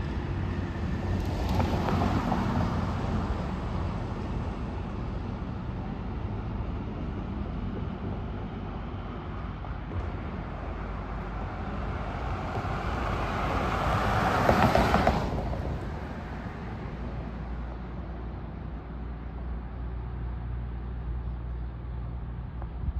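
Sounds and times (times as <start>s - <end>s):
vehicle passing: 10.0s - 19.6s.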